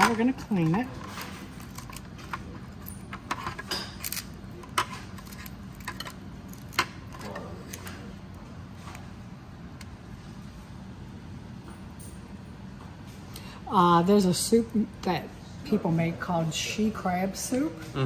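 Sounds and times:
low steady hum: 0.0 - 18.0
crab shell cracking: 5.2 - 7.8.

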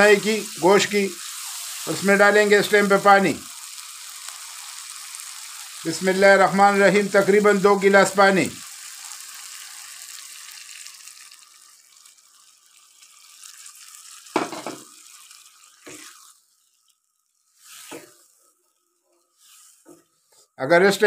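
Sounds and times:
water sizzling in hot pan: 0.0 - 20.4
wooden spatula scraping pan: 15.8 - 16.3, 17.6 - 18.5, 19.4 - 20.5.

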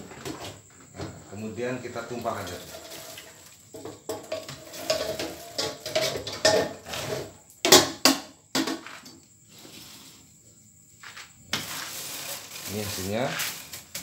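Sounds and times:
popcorn clattering against metal: 2.2 - 9.0, 11.6 - 14.0.

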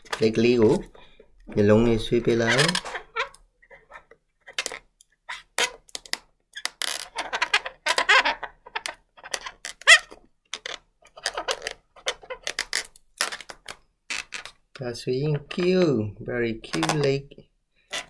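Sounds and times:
balloons squeaking: 0.0 - 18.0
scratchy rubbing on balloons: 1.7 - 5.9, 6.6 - 14.6.

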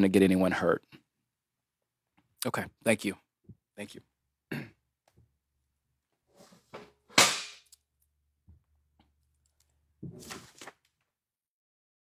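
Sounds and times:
loud sharp crack: 7.2 - 7.7.

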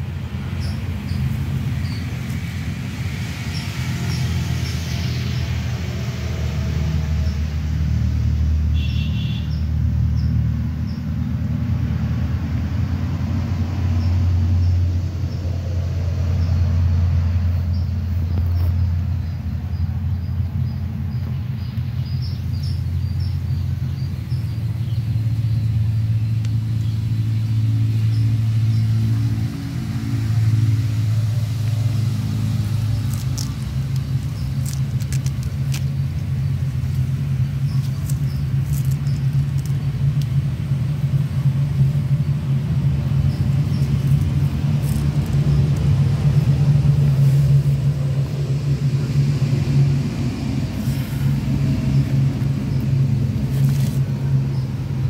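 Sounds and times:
low engine rumble: 0.0 - 55.0.

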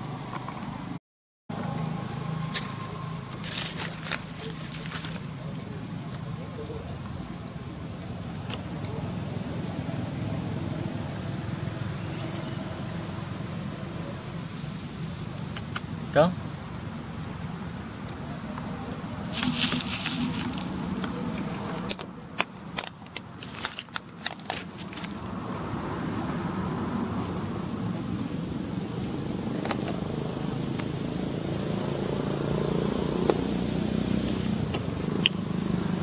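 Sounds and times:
plastic bottle crackling: 19.3 - 21.8.

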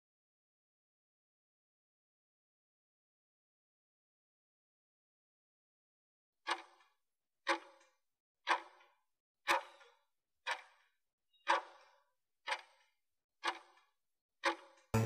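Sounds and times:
clock ticking: 6.5 - 6.9, 7.5 - 7.9, 8.5 - 8.9, 9.5 - 9.9, 10.5 - 15.0.

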